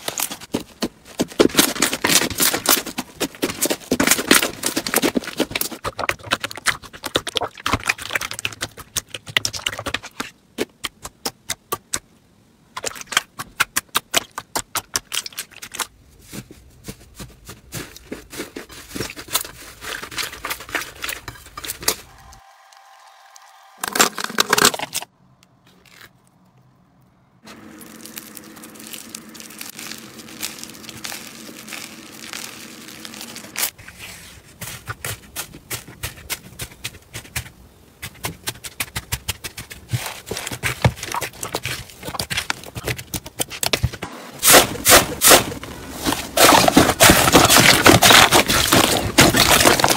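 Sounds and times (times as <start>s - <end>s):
slime squishing and popping: 27.5s - 33.7s.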